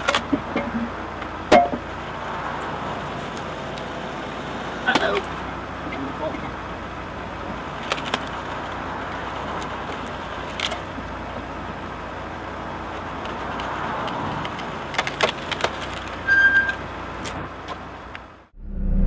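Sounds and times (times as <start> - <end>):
car engine running: 0.0 - 19.0
wood cracking and splitting: 7.7 - 11.1, 12.9 - 16.2
squeak: 16.2 - 16.8.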